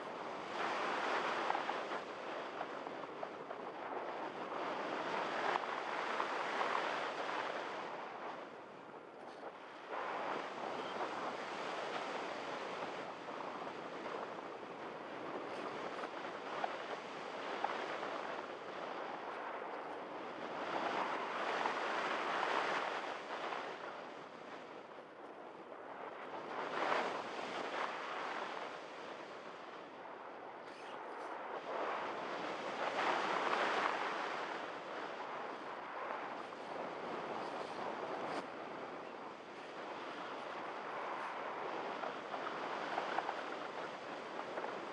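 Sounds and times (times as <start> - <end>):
wind rushing over microphone: 0.0 - 44.9.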